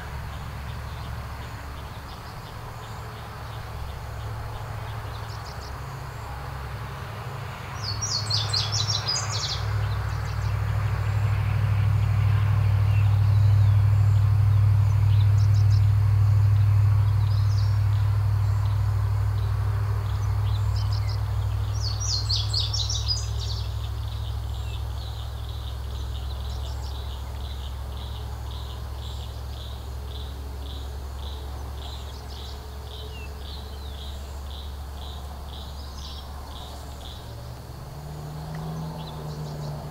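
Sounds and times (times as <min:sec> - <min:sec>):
songbird trills: 0:07.8 - 0:11.2, 0:12.8 - 0:37.8, 0:38.4 - 0:39.9.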